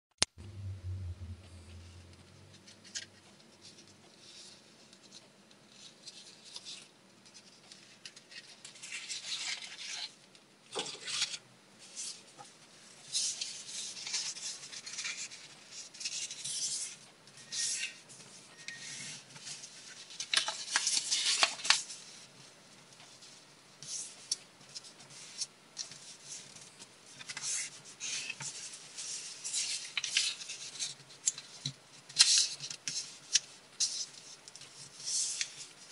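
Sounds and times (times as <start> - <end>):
paper rustling and creasing: 19.1 - 22.3, 23.8 - 35.9.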